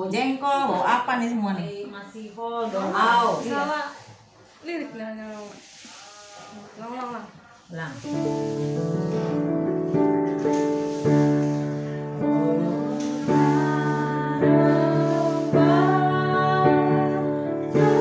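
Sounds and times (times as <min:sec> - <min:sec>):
digital piano chords: 0:08.0 - 0:18.0
woman singing: 0:12.2 - 0:18.0.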